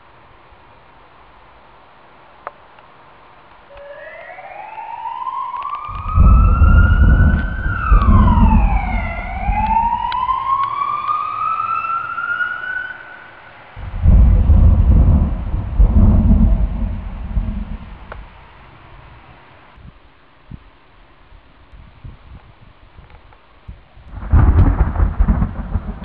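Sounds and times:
siren wailing: 3.7s - 18.3s
heavy thunder rumbling: 5.8s - 10.6s, 13.8s - 19.0s, 24.1s - 26.0s.

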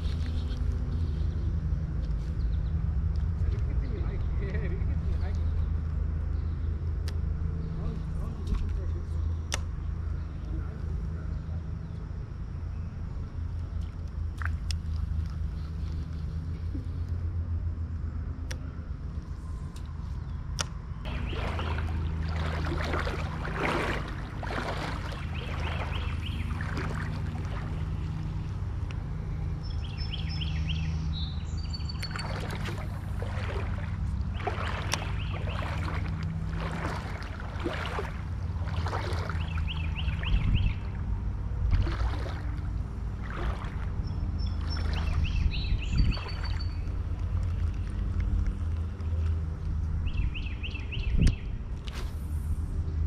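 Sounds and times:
water sloshing around legs: 13.6s - 17.1s, 20.6s - 50.2s
songbird trilling: 21.1s - 28.4s, 29.6s - 41.0s, 43.6s - 47.0s.

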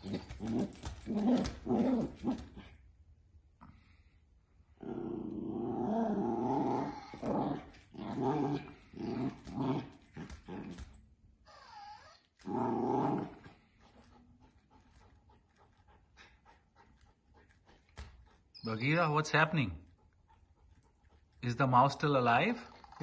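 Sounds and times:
puppy play-growling: 0.0s - 2.9s, 4.6s - 18.4s, 22.4s - 23.0s.

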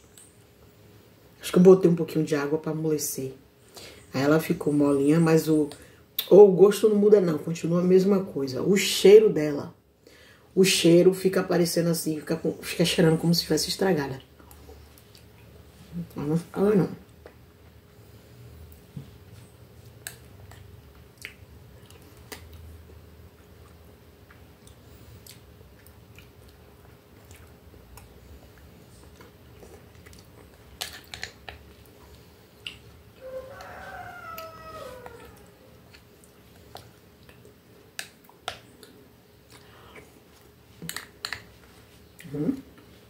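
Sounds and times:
soft chewing: 14.2s - 16.2s, 17.0s - 43.0s.

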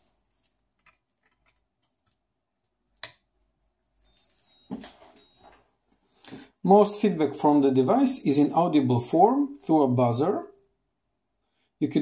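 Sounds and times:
buzzer start-up tune: 4.1s - 5.6s.

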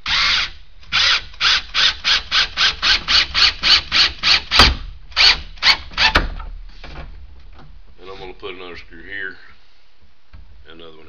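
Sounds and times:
cordless drill driving screw: 0.0s - 4.6s.

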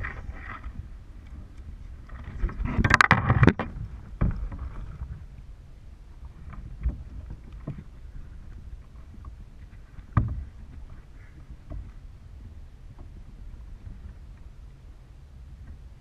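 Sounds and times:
rustling and knocks: 2.1s - 5.2s, 9.1s - 12.0s.

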